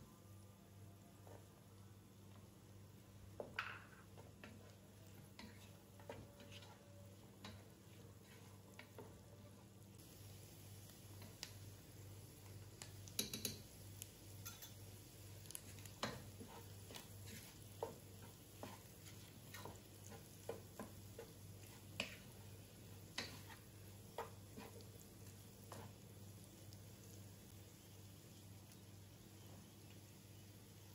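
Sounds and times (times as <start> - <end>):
wooden spoon scraping a pot: 4.2 - 9.6, 15.7 - 22.4, 23.1 - 24.9.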